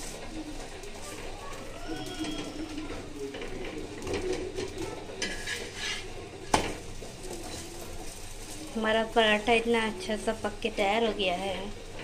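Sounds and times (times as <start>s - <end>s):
metal spatula scraping a griddle: 2.2s - 8.6s.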